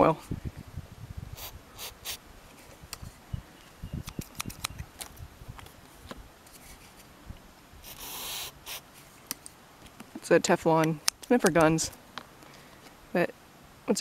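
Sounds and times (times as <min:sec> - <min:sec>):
aerosol spray hiss: 0:01.4 - 0:02.2, 0:07.8 - 0:08.9
scissors clicking: 0:04.0 - 0:04.8.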